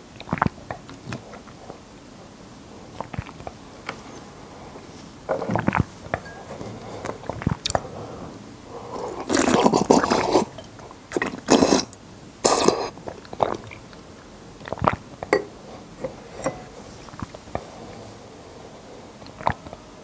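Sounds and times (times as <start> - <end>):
wet slurping: 8.8 - 14.0, 19.2 - 19.7.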